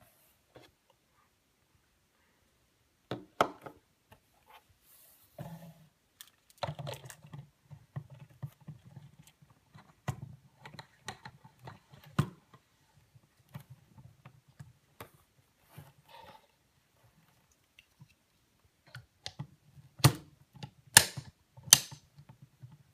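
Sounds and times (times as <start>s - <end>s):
plastic parts clicking and knocking: 6.2s - 15.2s, 17.3s - 22.9s.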